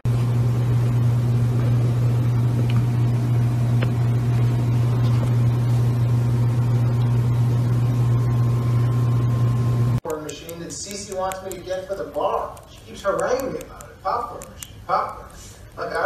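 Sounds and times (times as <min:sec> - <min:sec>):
low hum: 0:00.1 - 0:10.0.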